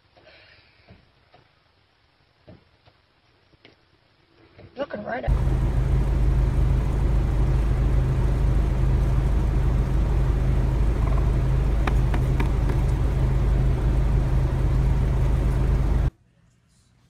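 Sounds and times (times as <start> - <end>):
engine idling: 5.3 - 16.1
turkey tapping on mirror: 11.8 - 12.9.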